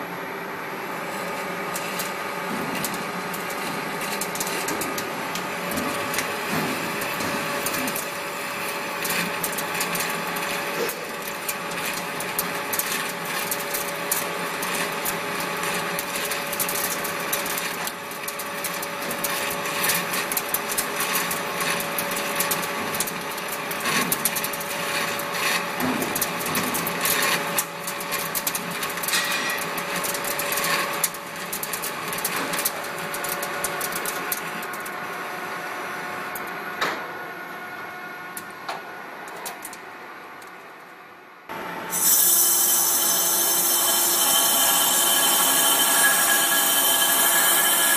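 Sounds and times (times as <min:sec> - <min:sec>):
lathe machine whine: 0:41.5 - 0:47.9.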